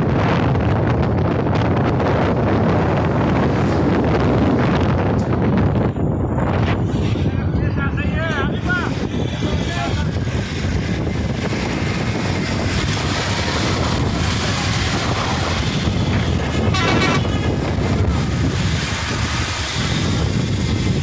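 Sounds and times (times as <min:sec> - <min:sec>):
street traffic rumble: 0:00.0 - 0:21.0
wind buffeting microphone: 0:00.0 - 0:21.0
wavering horn: 0:16.5 - 0:17.5.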